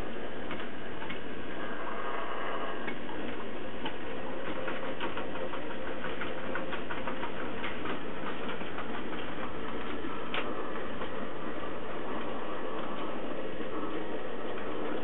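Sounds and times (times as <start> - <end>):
model train mechanical hum: 0.0 - 15.0
wheels clicking over rail joints: 2.9 - 11.3.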